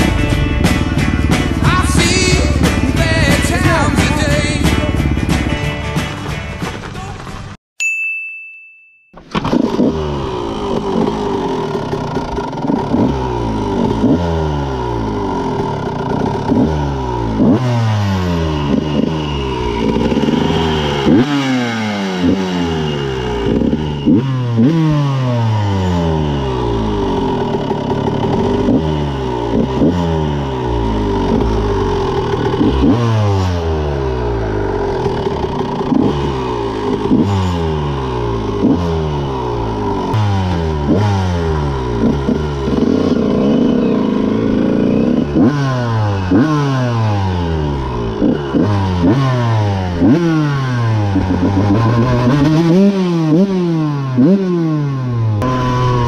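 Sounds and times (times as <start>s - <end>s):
two-stroke motorcycle engine revving: 0.0s - 7.6s, 9.2s - 56.0s.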